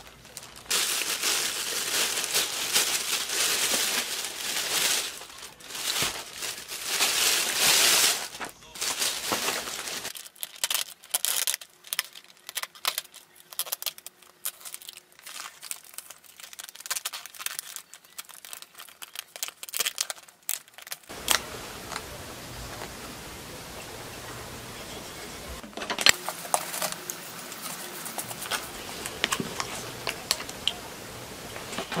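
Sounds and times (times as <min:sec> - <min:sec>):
plastic bag and containers crinkling: 0:00.0 - 0:23.5, 0:25.6 - 0:32.0
steady hiss: 0:21.1 - 0:25.6.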